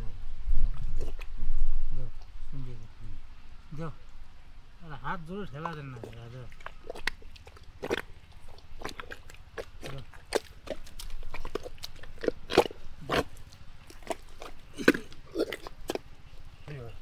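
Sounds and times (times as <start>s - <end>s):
hands squelching wet mud: 5.4s - 17.0s.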